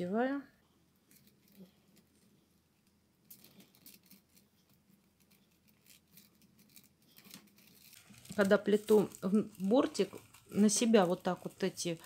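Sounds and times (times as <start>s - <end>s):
paper rustling and small clicks: 1.1s - 12.0s.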